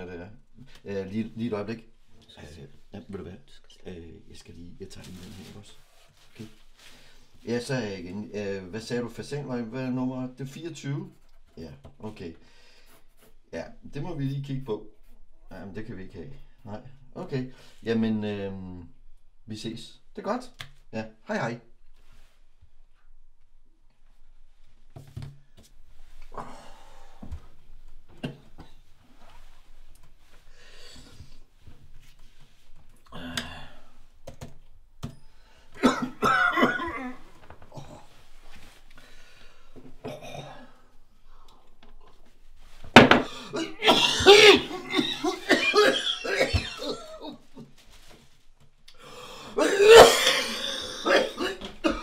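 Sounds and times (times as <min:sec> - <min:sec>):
man coughing: 0:35.8 - 0:37.2, 0:40.0 - 0:40.7, 0:43.1 - 0:47.4, 0:49.6 - 0:52.0
man breathing laboriously: 0:39.0 - 0:39.9, 0:49.0 - 0:49.6
man straining vocally: 0:43.2 - 0:47.3.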